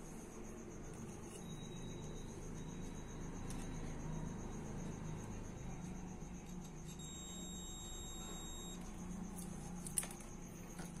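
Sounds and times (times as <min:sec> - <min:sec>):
multimeter continuity beep: 0:00.9 - 0:05.7, 0:06.8 - 0:08.9.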